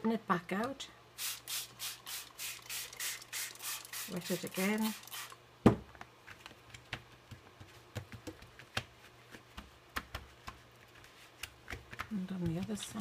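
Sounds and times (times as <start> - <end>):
fingernails clicking and tapping on card: 6.3 - 13.0.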